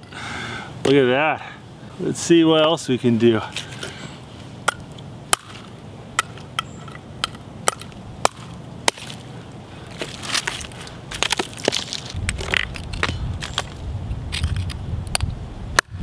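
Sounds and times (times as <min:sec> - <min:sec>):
gritty scraping of concrete: 0:08.3 - 0:15.3.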